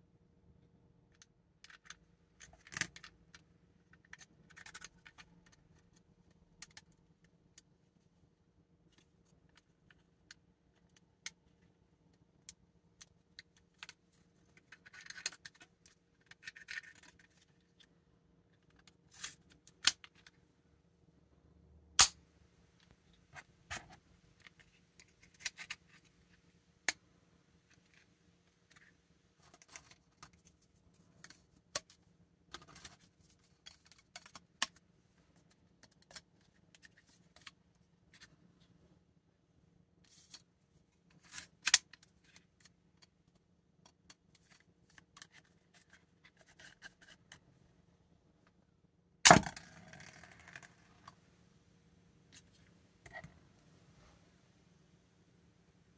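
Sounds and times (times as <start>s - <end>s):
plastic parts clicking and scraping: 1.1s - 7.7s, 8.8s - 20.4s, 22.8s - 27.0s, 27.6s - 38.4s, 40.0s - 47.5s
sharp plastic snaps: 21.9s - 22.2s.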